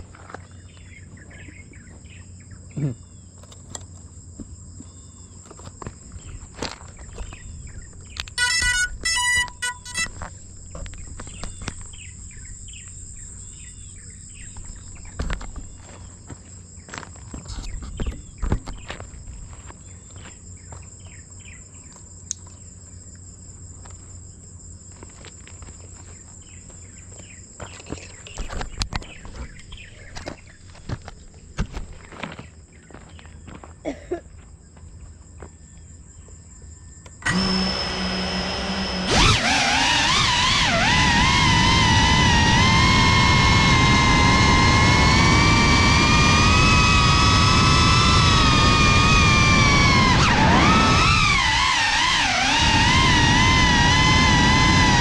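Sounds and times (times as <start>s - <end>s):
footsteps on gravel: 0.0s - 2.1s, 4.3s - 8.8s, 9.4s - 13.0s, 14.4s - 21.2s, 24.8s - 35.6s
insects trilling: 0.0s - 55.0s
electronic beeps: 8.4s - 10.2s.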